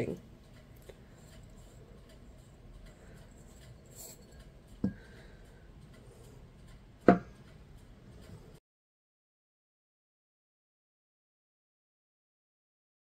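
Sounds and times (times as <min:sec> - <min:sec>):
soft handling sounds: 0:00.0 - 0:05.1
glass knocking on wooden table: 0:07.1 - 0:07.3.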